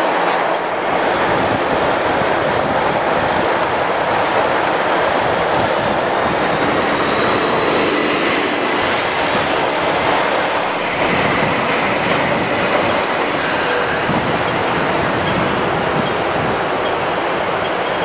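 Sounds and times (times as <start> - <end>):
train wheels squealing: 0.4 - 1.4, 11.0 - 16.2, 17.6 - 18.0.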